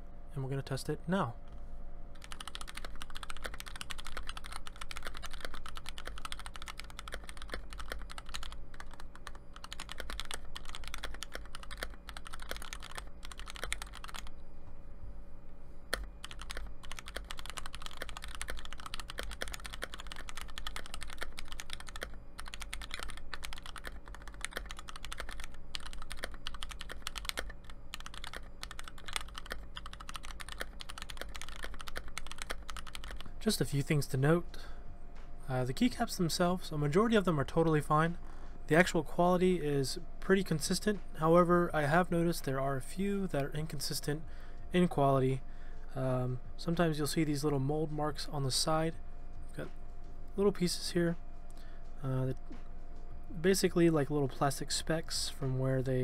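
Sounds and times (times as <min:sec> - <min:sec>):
mechanical keyboard typing: 0:02.2 - 0:14.3, 0:15.9 - 0:33.3.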